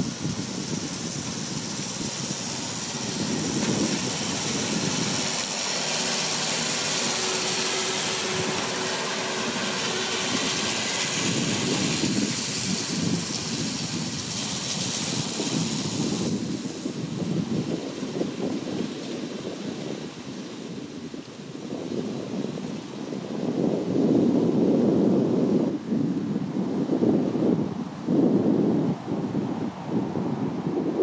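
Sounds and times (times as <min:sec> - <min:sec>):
tractor running: 0:00.0 - 0:23.1.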